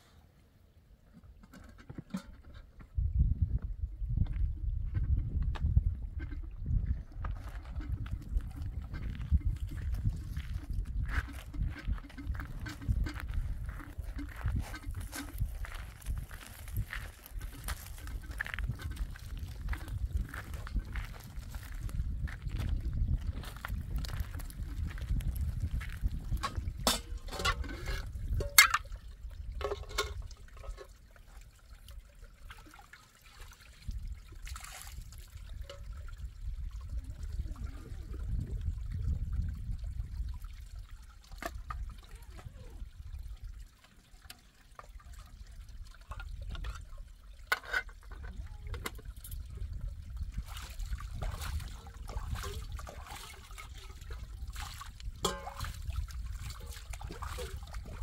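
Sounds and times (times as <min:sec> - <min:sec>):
water trickling and splashing: 0:00.0 - 0:58.0
metal pots and stones knocking: 0:01.2 - 0:02.8, 0:04.2 - 0:15.9, 0:16.8 - 0:21.1, 0:23.8 - 0:31.0, 0:47.5 - 0:49.4, 0:55.2 - 0:55.8.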